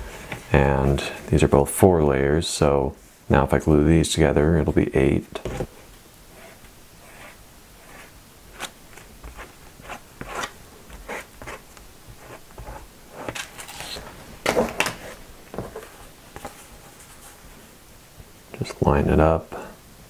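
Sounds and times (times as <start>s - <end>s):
paper rustling: 7.9s - 17.4s.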